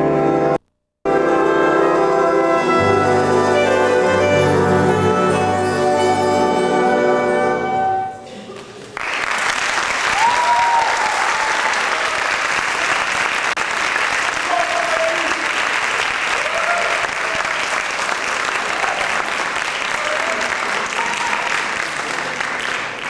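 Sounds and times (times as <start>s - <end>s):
audience applauding: 8.5s - 23.0s.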